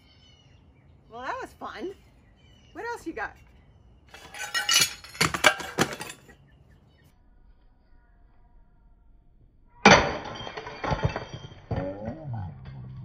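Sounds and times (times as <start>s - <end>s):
porcelain pieces clinking: 4.1s - 6.3s
sledgehammer smashing porcelain: 4.2s - 6.2s, 9.8s - 12.2s.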